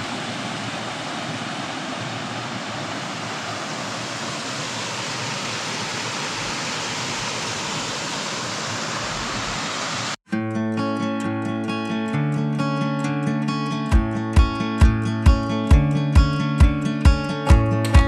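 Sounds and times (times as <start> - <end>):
water rushing over rocks: 0.0 - 10.2.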